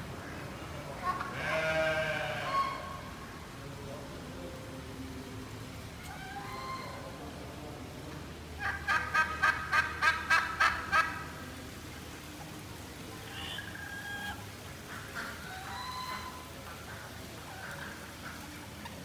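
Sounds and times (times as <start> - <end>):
turkey gobbling: 2.4 - 3.1, 6.0 - 7.2, 8.6 - 11.3, 13.2 - 19.0.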